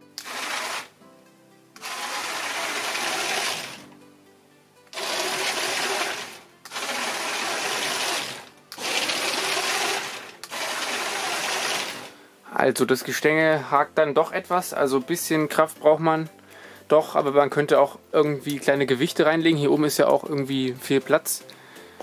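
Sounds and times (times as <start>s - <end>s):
toy train motor whirring rattle: 0.2s - 0.9s, 1.8s - 3.8s, 5.0s - 12.1s.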